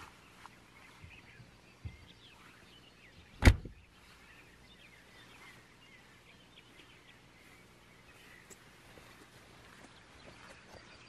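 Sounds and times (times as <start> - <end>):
birds chirping faintly: 0.0 - 11.0
van door slamming: 3.4 - 3.8.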